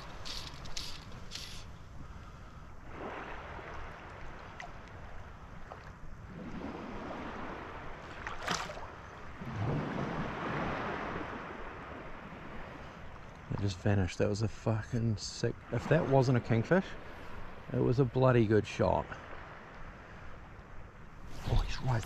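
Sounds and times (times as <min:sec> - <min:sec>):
seawater sloshing: 0:00.0 - 0:11.6, 0:15.0 - 0:18.1, 0:21.2 - 0:22.0.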